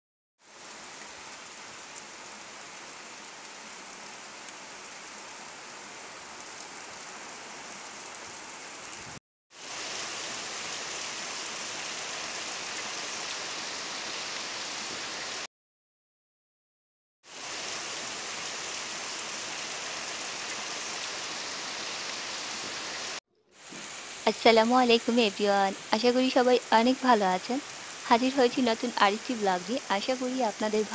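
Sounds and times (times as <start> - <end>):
heavy rain hissing: 0.4 - 15.5, 17.3 - 30.9.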